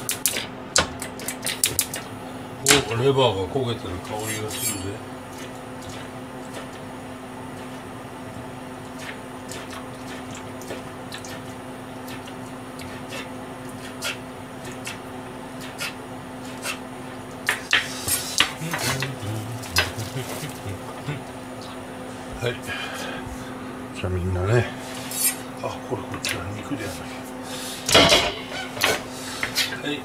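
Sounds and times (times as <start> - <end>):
steady low hum: 0.0 - 30.0
kitchenware clinking: 27.9 - 29.0.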